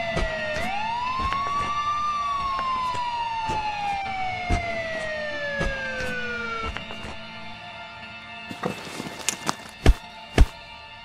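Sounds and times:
siren-like wailing tone: 0.0s - 7.1s.

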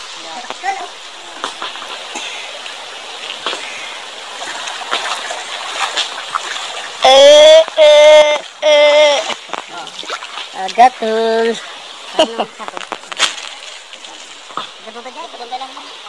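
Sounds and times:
water splashing around wading legs: 0.0s - 16.0s
high-pitched voice calling out: 7.0s - 9.4s.

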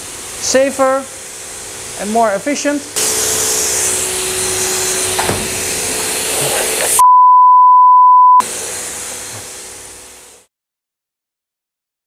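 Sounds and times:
pressure washer spraying hiss: 0.0s - 7.0s, 8.4s - 10.5s
steady hum: 0.0s - 7.2s
loud steady beep tone: 7.0s - 8.4s.

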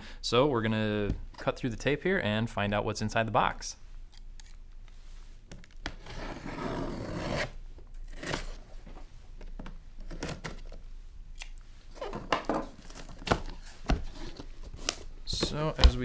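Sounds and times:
scissors scraping cardboard: 6.0s - 8.6s.

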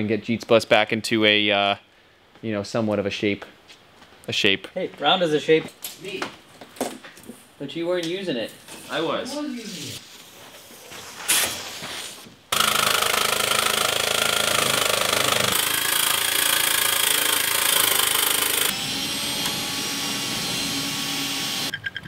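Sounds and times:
power tool cutting sheet steel: 12.5s - 21.7s.

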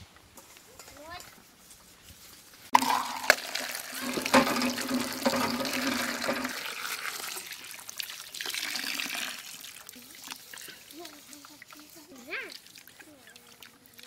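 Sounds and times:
hands scrubbing snails: 2.7s - 14.0s
water splashing onto steel plate: 2.8s - 14.0s.

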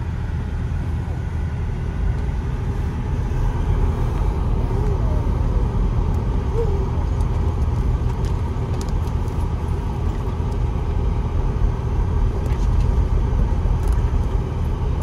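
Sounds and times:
car driving on gravel: 5.2s - 15.0s.

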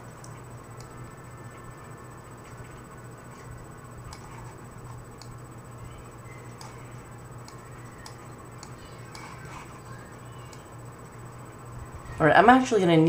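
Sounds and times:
computer mouse clicking: 0.0s - 1.0s, 2.4s - 5.5s, 6.3s - 10.7s
steady low hum: 0.0s - 13.0s.

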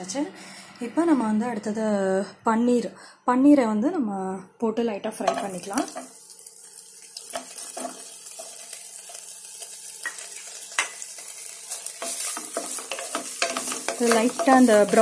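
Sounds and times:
cheese sizzling in hot oil: 5.3s - 15.0s.

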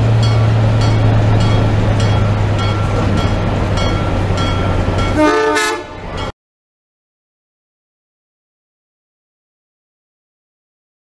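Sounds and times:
locomotive bell ringing: 0.0s - 6.3s
diesel locomotive engine hum: 0.0s - 6.4s.

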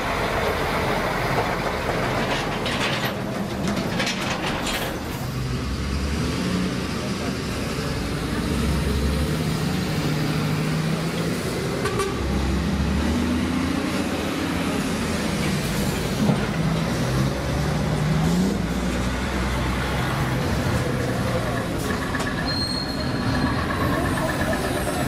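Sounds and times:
diesel trucks driving past: 0.0s - 25.0s
truck horns tooting: 11.8s - 12.4s.

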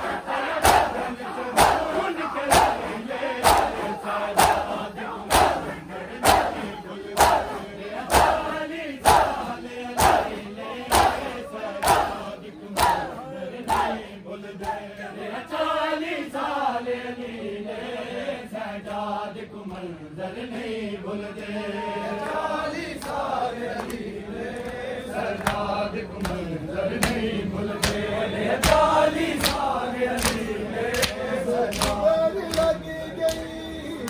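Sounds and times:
men chanting in unison: 0.0s - 34.0s
chest-beating slaps: 0.6s - 0.9s, 1.6s - 1.9s, 2.5s - 2.8s, 3.4s - 3.8s, 4.4s - 5.6s, 10.9s - 11.2s.

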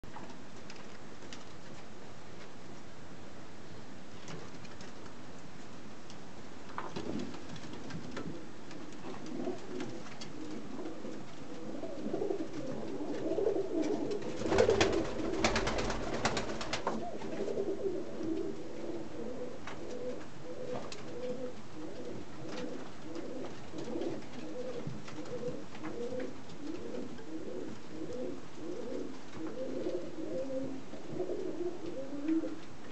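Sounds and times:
pigeons cooing: 7.0s - 32.7s.

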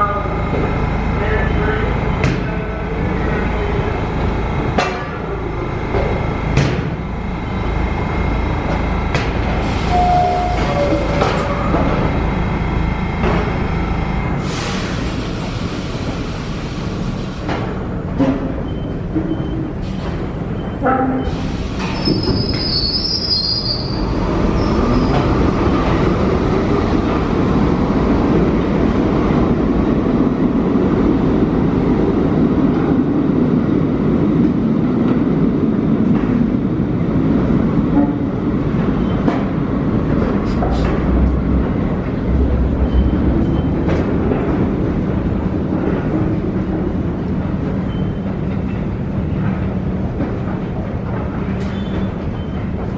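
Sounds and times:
subway train rumbling on track: 0.0s - 52.9s
train wheel squeal: 9.8s - 11.8s, 20.6s - 25.3s, 51.6s - 52.7s.

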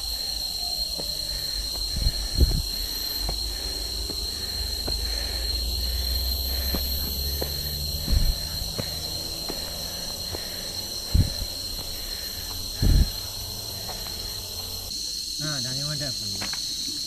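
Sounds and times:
insects shrilling: 0.0s - 17.0s
loud low thumps: 1.0s - 11.9s, 12.5s - 13.3s.

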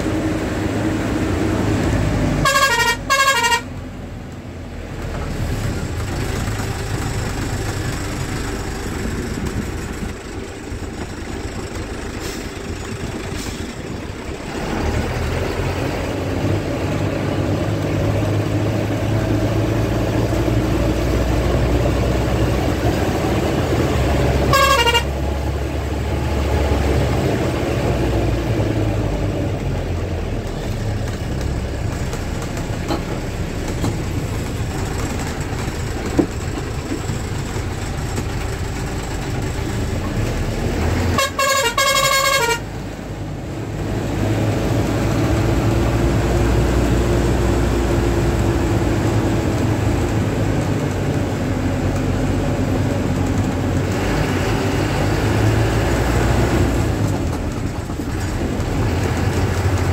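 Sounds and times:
bus engine and road noise: 0.0s - 59.9s
bus horn blasts: 2.4s - 3.8s, 24.0s - 25.4s, 41.0s - 42.8s.

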